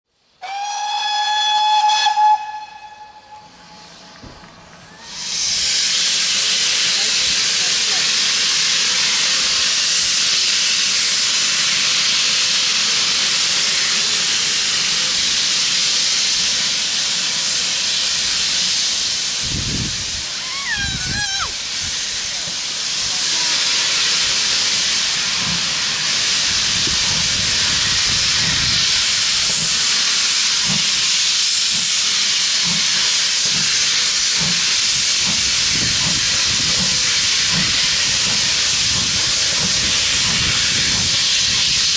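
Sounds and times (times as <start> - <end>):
locomotive blowing off steam: 0.2 - 41.9.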